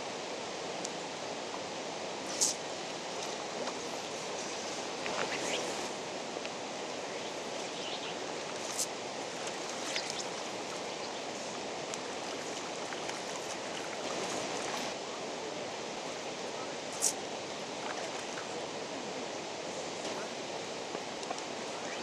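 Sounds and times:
running water rushing: 0:00.0 - 0:22.0.

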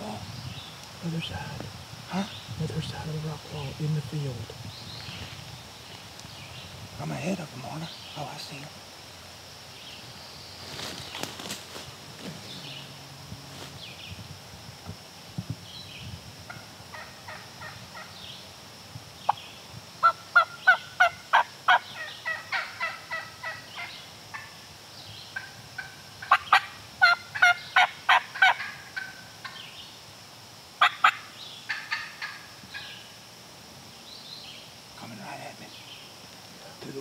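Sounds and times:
turkey yelping: 0:20.0 - 0:24.5, 0:25.8 - 0:29.2.

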